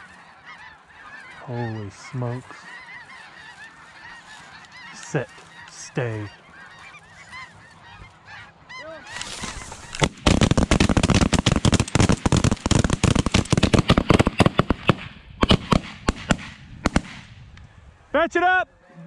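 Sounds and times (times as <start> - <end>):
geese calling: 0.0 - 16.4
shotgun fire: 10.0 - 17.4.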